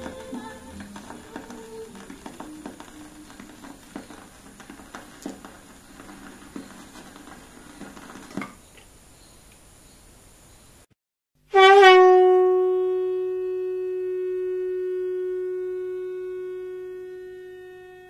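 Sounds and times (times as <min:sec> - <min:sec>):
faint music notes: 0:00.0 - 0:08.4, 0:11.5 - 0:18.0
vinyl record clicks: 0:00.0 - 0:08.9
vinyl surface noise: 0:00.0 - 0:09.8.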